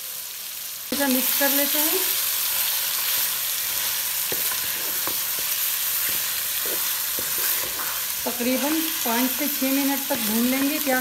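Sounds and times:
food sizzling in hot oil: 0.0 - 11.0
spoon knocking and scraping pan: 4.2 - 9.2, 10.2 - 11.0.

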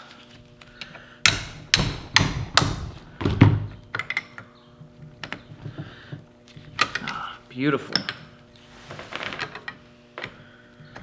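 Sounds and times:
hammer striking metal wrench: 1.3 - 2.9.

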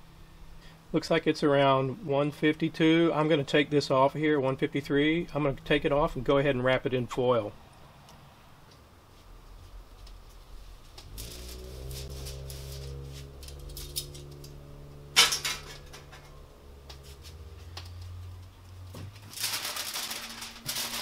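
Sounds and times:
steady low hum: 0.0 - 21.0
aluminium foil crinkling: 17.0 - 21.0.

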